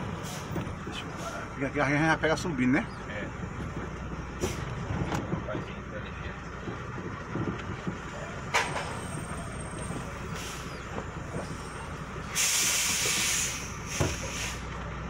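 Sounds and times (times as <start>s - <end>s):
truck engine running: 0.0s - 15.0s
air brakes hissing: 0.2s - 1.5s, 4.4s - 4.7s, 8.6s - 14.8s.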